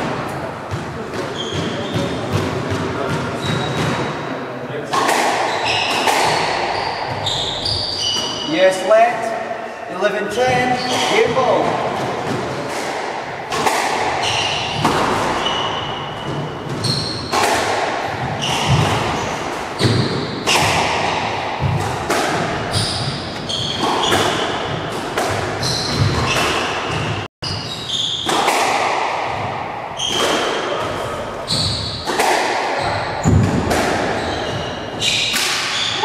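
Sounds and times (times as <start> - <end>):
shoes squeaking on wooden floor: 1.3 - 2.4, 3.4 - 4.1, 5.5 - 8.6, 10.3 - 11.8, 14.2 - 17.4, 22.7 - 24.9, 25.6 - 28.3, 31.4 - 32.1, 34.1 - 36.0.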